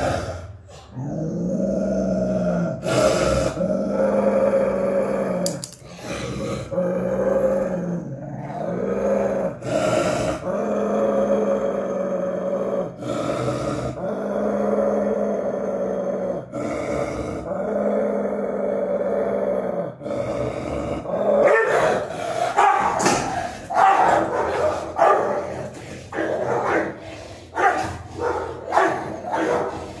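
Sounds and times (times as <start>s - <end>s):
dog growling: 0.0s - 30.0s
dog barking: 21.4s - 30.0s.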